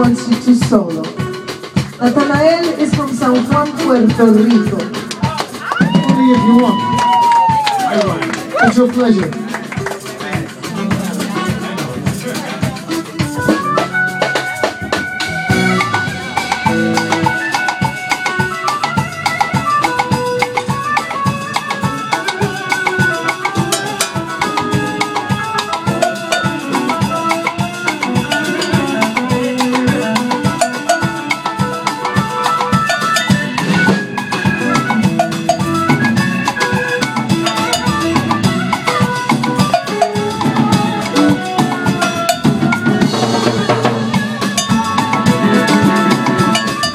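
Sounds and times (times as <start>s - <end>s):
conga drums: 0.0s - 46.9s
drum kit: 0.0s - 46.9s
melodic solo line: 10.4s - 46.9s.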